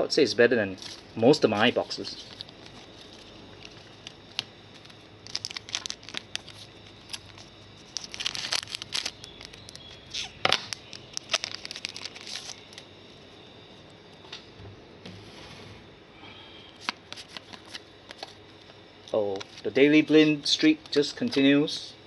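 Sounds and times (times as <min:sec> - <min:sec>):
foil card pack crinkling and tearing: 0:01.6 - 0:12.8, 0:16.8 - 0:18.4.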